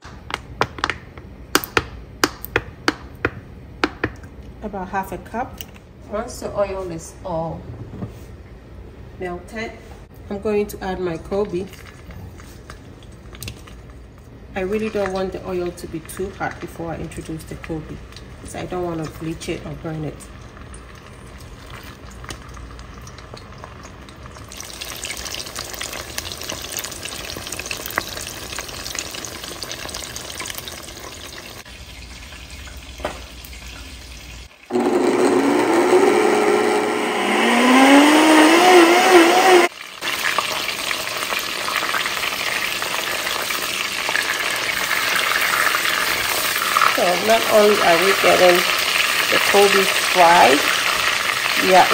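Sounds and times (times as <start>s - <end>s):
fish frying in oil: 20.3s - 34.7s, 39.7s - 51.9s.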